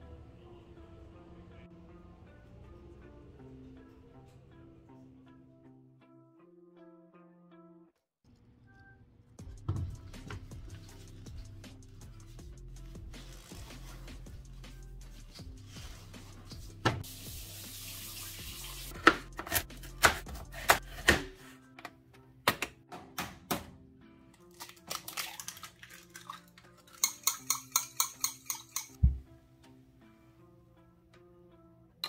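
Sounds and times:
background music: 0.0s - 8.0s, 8.6s - 32.0s
spoon clinking in a bowl: 26.2s - 29.0s.

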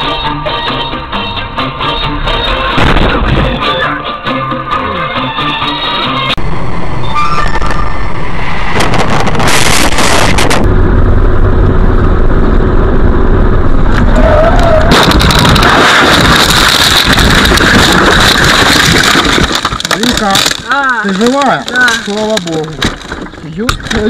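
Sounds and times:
road and engine rumble: 0.0s - 24.0s
car crashing and tumbling: 2.7s - 3.7s, 8.6s - 10.7s, 13.9s - 24.0s.

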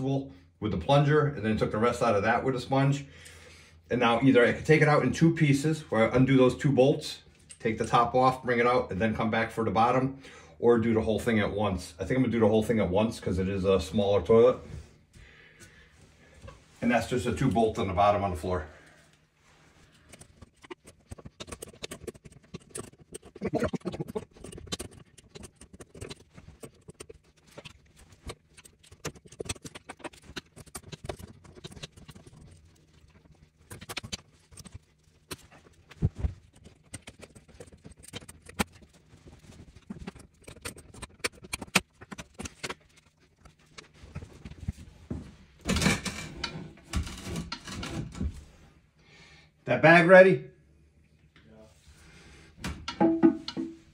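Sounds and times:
porcelain toilet scraping and knocking: 52.7s - 53.9s.

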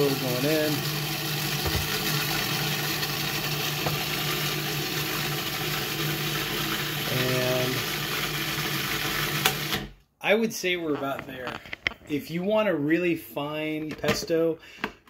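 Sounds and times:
food processor running: 0.0s - 10.0s.

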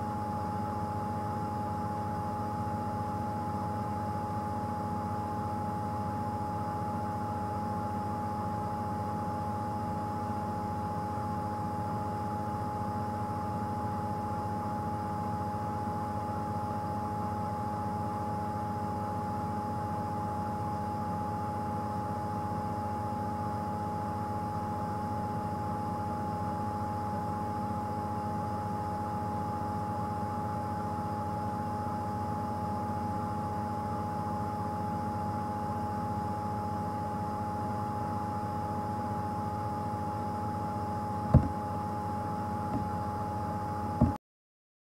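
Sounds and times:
thin steady whine: 0.0s - 44.2s.

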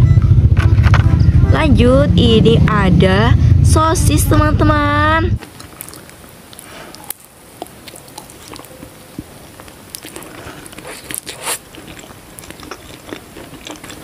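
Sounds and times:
biting and chewing sausage: 5.4s - 14.0s.

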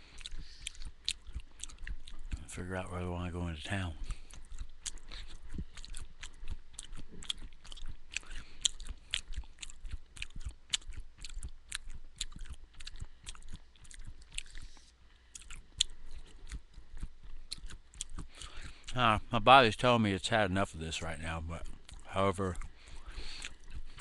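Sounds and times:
person chewing crunchy granola: 0.0s - 19.4s, 20.8s - 24.0s.

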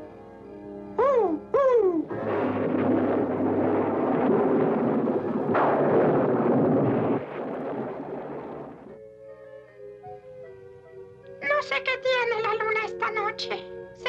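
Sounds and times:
soft music with held notes: 0.0s - 2.1s, 8.9s - 14.0s
loud rushing noise: 2.1s - 8.9s
sudden burst: 2.1s - 9.0s.

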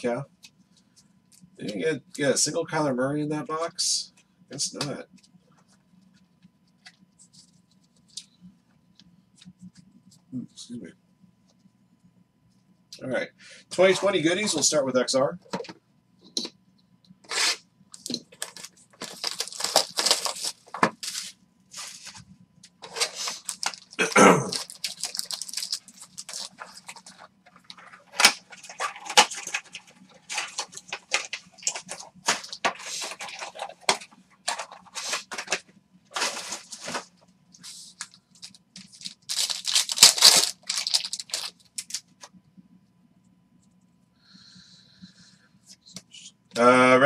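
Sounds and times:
wrapper crinkling and tearing: 17.3s - 22.2s, 22.8s - 37.1s, 38.0s - 42.1s
cards shuffling in hand: 17.3s - 42.1s.

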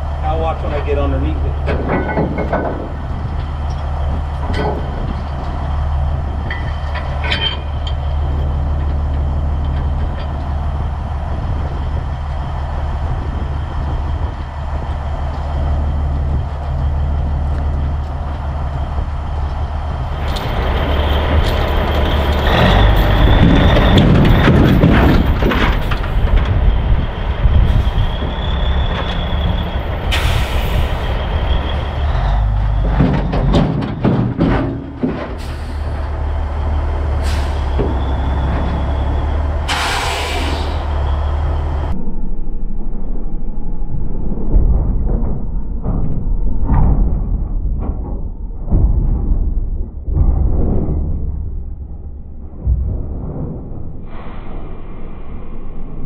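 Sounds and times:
truck diesel engine: 0.0s - 56.0s
high whine: 35.8s - 48.1s
air hiss: 39.7s - 40.9s.

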